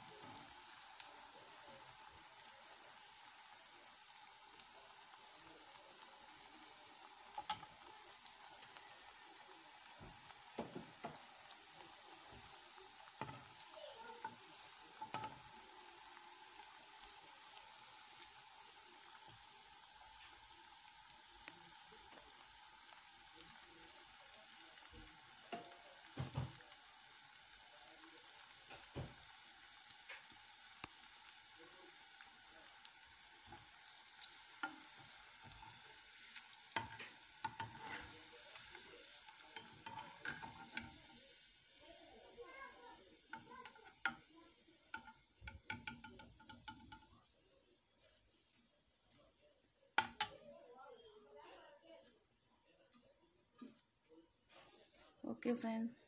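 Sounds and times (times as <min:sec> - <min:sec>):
oil sizzling in a pan: 0:00.0 - 0:56.0
metal spoon clinking on a pan: 0:07.3 - 0:07.8, 0:13.2 - 0:13.6, 0:15.0 - 0:15.5, 0:25.5 - 0:25.9, 0:36.8 - 0:38.8, 0:39.4 - 0:41.1, 0:43.3 - 0:44.3, 0:44.9 - 0:47.2, 0:50.0 - 0:50.4.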